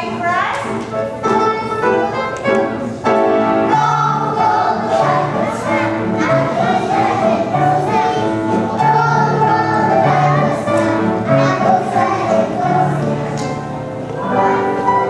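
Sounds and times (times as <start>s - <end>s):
instrumental backing music: 0.0s - 15.0s
children singing: 3.3s - 15.0s.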